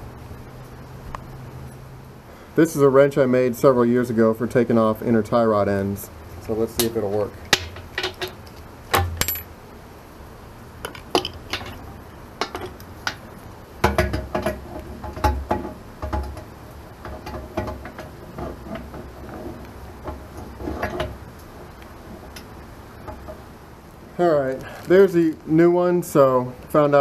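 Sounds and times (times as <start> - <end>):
wrench clinking against metal: 9.2 - 9.5.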